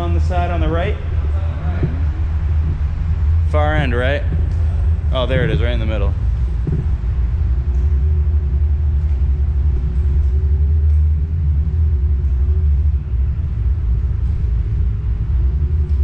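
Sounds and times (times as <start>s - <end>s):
tyres rumbling on concrete: 0.0s - 7.8s.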